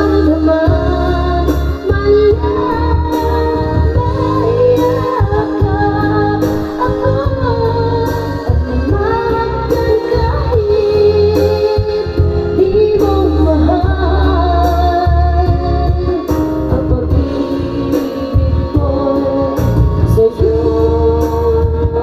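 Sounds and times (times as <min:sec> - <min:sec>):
karaoke backing track: 0:00.0 - 0:22.0
woman singing ballad: 0:00.0 - 0:22.0.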